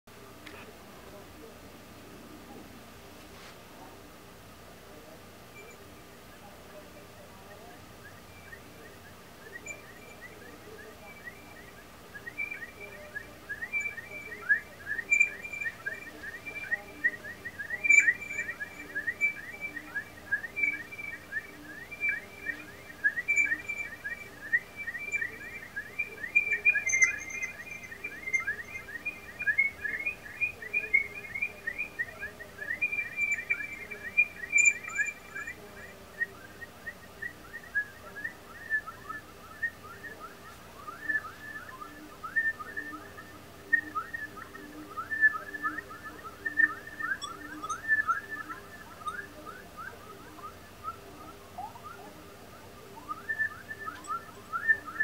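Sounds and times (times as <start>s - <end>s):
faint steady hum: 0.1s - 55.0s
synthesizer high chirps: 46.7s - 49.3s.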